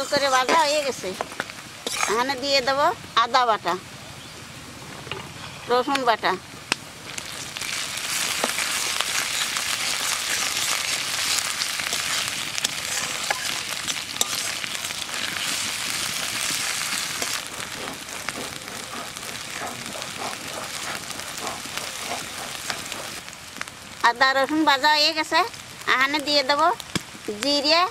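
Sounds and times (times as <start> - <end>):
spatula scraping a pan: 0.0 - 1.1, 1.8 - 2.4, 7.2 - 23.2
pastes sizzling in hot oil: 0.0 - 27.9.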